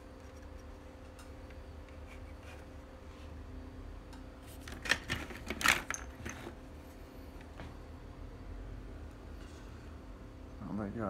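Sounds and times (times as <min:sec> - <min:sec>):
plastic parts clicking and rattling: 0:04.7 - 0:06.5.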